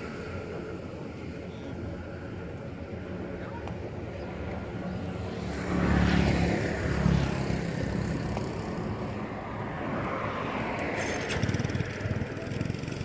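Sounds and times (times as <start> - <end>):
motor engine running: 7.0 - 9.2, 10.9 - 13.0.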